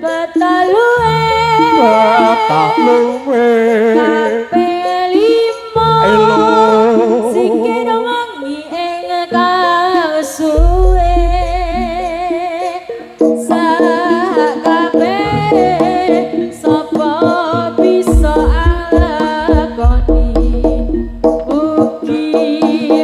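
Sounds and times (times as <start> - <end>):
person singing with vibrato: 0.0 - 23.0
deep low rumble: 10.6 - 12.2, 18.2 - 21.1
sparse accompaniment: 10.6 - 12.5, 18.1 - 21.9.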